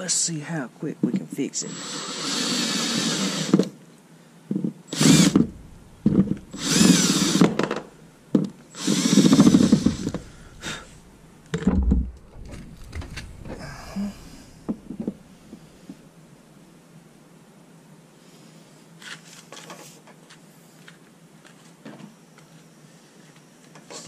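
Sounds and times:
cordless drill cutting into plastic: 1.7s - 3.8s, 4.9s - 7.9s, 8.7s - 11.0s.

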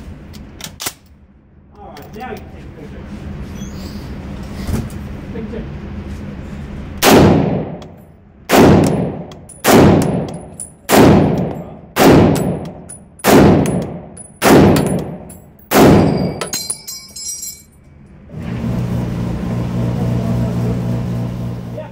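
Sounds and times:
rifle shots: 7.0s - 16.4s.

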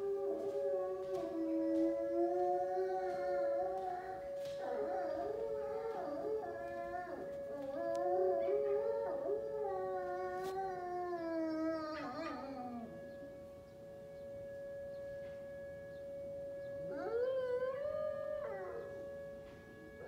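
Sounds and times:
dog howling: 0.0s - 13.1s, 16.8s - 19.3s
warning siren steady tone: 0.0s - 20.0s.

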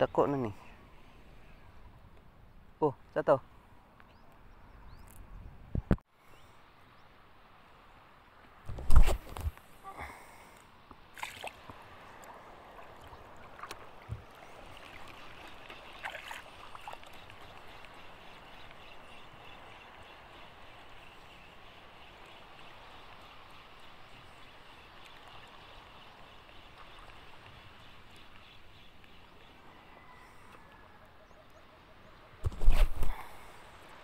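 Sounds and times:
water lapping and sloshing: 11.0s - 28.7s.

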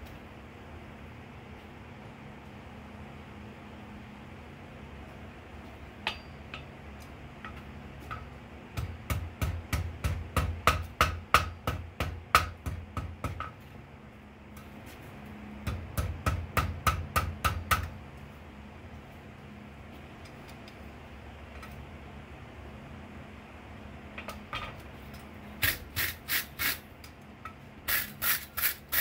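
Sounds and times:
hammer striking hot steel on anvil: 6.0s - 6.7s, 7.5s - 13.6s, 15.6s - 18.0s.

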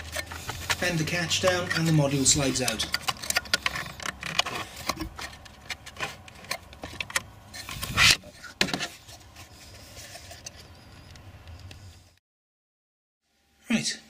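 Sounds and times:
plastic scraping: 0.0s - 11.1s
plastic clicks and rattles: 2.6s - 7.3s.

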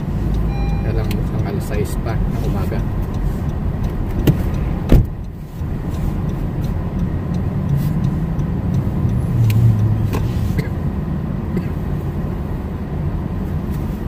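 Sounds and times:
car road and engine rumble: 0.0s - 14.0s
sharp thump: 4.1s - 5.2s.

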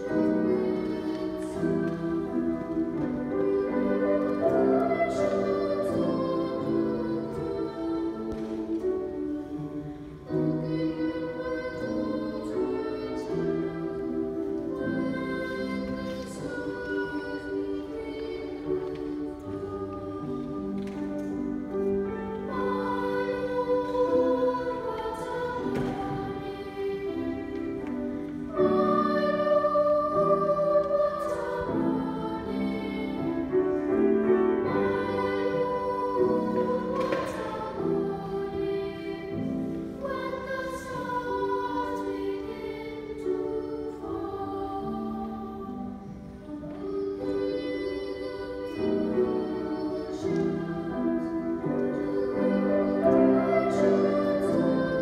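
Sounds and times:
boys' choir singing: 0.0s - 55.0s.

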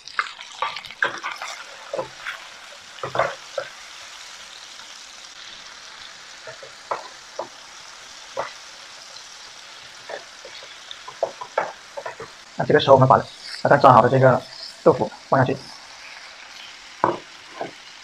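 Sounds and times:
tomatoes sizzling in hot oil: 0.0s - 18.0s
wooden spatula scraping a pan: 0.6s - 3.7s, 10.0s - 12.5s, 16.0s - 17.8s.

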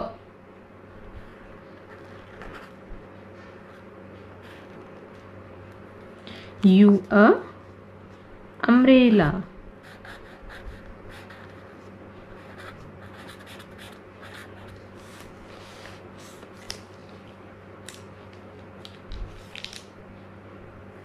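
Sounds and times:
steady low hum: 0.0s - 21.0s
pen scratching on paper: 9.8s - 11.7s, 12.4s - 14.8s
pen clicks and paper rustles: 12.5s - 17.2s, 17.9s - 19.9s.

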